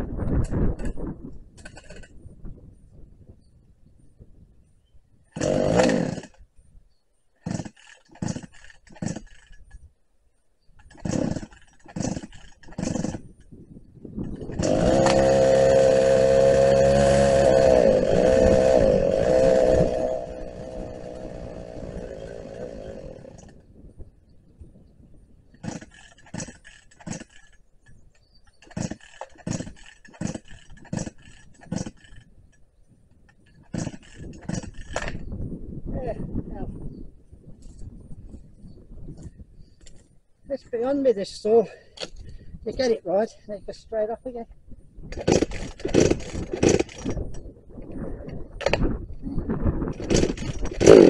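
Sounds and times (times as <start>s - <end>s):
chainsaw engine sputtering and running: 1.6s - 2.1s, 5.3s - 6.4s, 7.4s - 9.8s, 10.8s - 13.5s, 14.2s - 23.6s, 25.5s - 32.6s, 33.3s - 35.3s, 45.1s - 47.4s, 49.9s - 51.0s
starter cord pulls: 1.6s - 2.1s, 5.4s - 6.4s, 7.4s - 9.8s, 10.8s - 13.5s, 14.2s - 23.6s, 25.6s - 32.6s, 33.2s - 35.3s, 45.1s - 47.4s, 48.6s - 48.9s, 49.9s - 51.0s.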